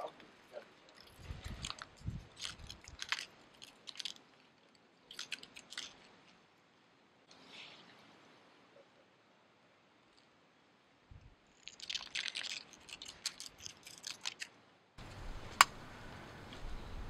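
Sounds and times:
dry leaves skittering over asphalt: 0:00.9 - 0:06.1
low steady rumble: 0:15.0 - 0:17.0.

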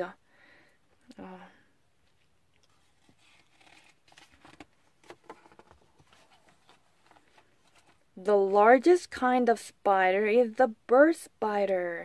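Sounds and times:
paper page rustling: 0:02.7 - 0:08.0.

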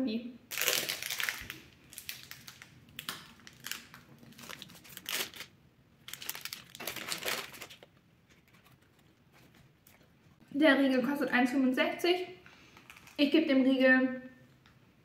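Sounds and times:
plastic wrapper tearing and crinkling: 0:00.5 - 0:08.8, 0:12.8 - 0:13.2.

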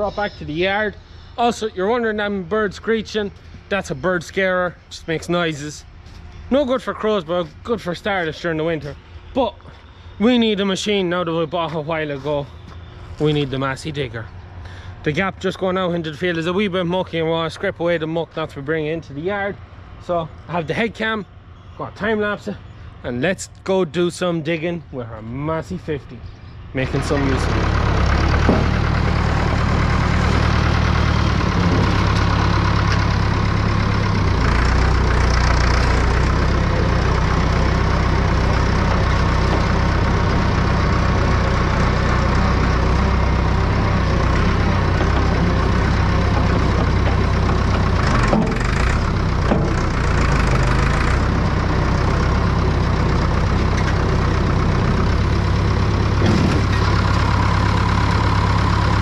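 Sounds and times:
digger diesel engine running: 0:25.2 - 0:59.0.

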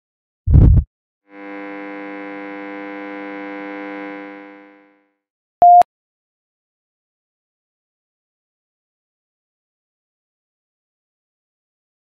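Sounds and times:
single-pitch beep: 0:05.6 - 0:05.9.

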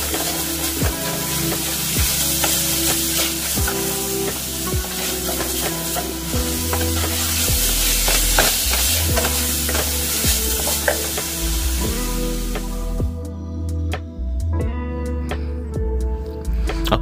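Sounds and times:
wooden spatula scraping a pan: 0:00.0 - 0:12.7
meat sizzling in oil: 0:00.0 - 0:13.0.

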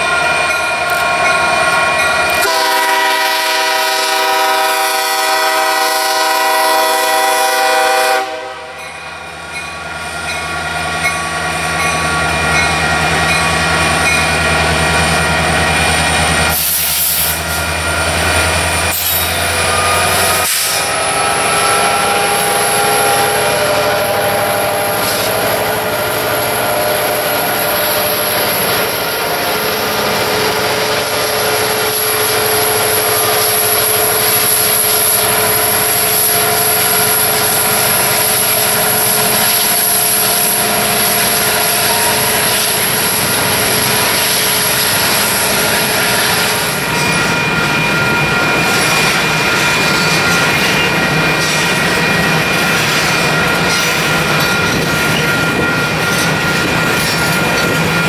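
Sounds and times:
diesel locomotives passing: 0:00.0 - 0:58.0.

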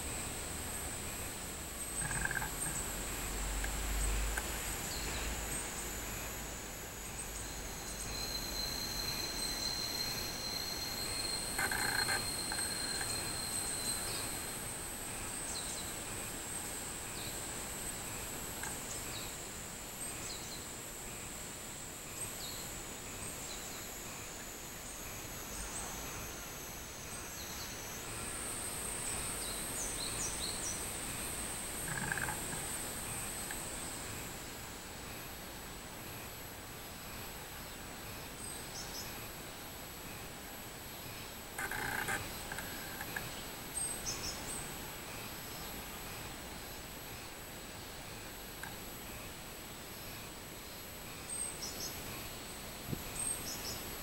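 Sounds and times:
cicadas shrill drone: 0:00.0 - 0:21.4, 0:22.0 - 0:39.4, 0:40.0 - 0:54.0
lower steady cicada tone: 0:00.0 - 0:54.0.

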